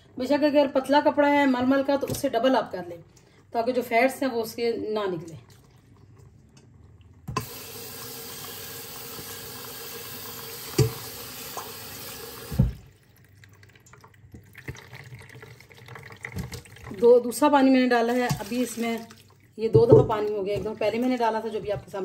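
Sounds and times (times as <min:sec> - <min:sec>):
tap water running into sink: 0:07.2 - 0:17.1, 0:18.1 - 0:22.0.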